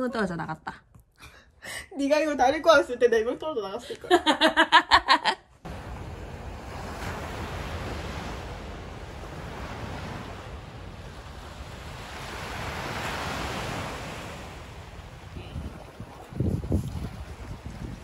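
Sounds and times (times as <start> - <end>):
small waves washing on beach: 5.7 - 18.0
wind buffeting microphone: 5.7 - 18.0.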